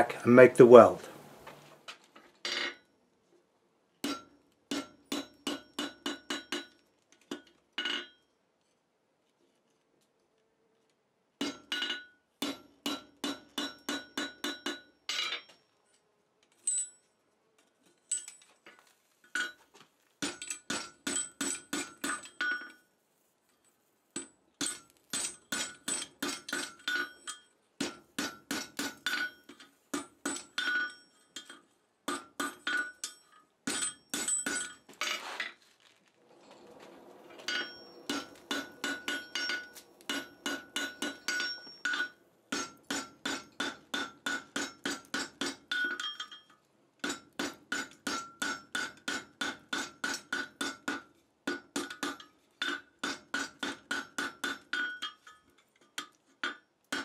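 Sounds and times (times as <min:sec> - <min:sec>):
hammer ringing on anvil: 0:28.2 - 0:31.5, 0:32.1 - 0:34.8, 0:37.5 - 0:46.4.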